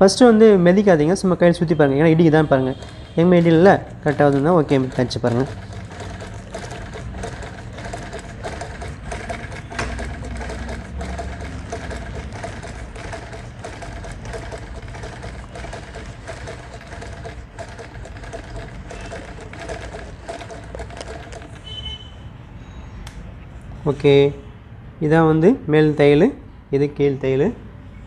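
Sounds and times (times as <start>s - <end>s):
treadle sewing machine stitching: 2.2s - 21.9s.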